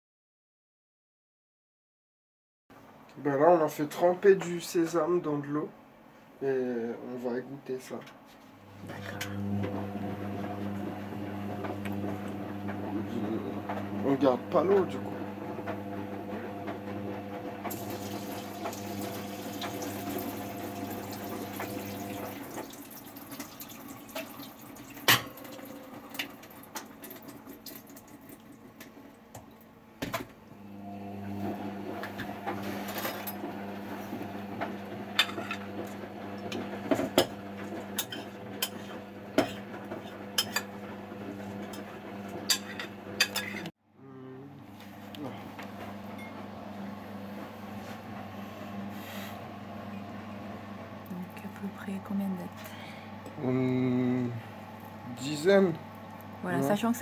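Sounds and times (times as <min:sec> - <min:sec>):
water pouring into a sieve: 0:17.7 - 0:28.4
spoon clinking and scraping: 0:38.0 - 0:39.6.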